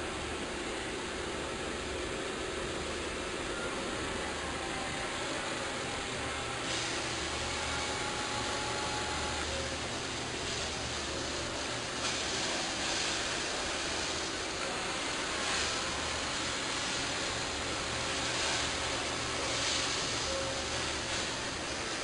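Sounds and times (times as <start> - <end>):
low machinery hum: 0.0 - 22.0
even hiss: 3.2 - 22.0.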